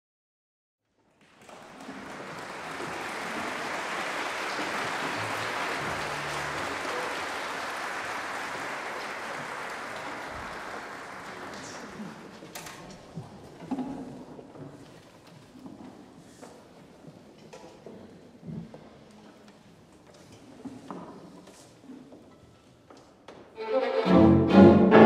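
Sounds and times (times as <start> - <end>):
audience applauding: 1.1 - 12.4.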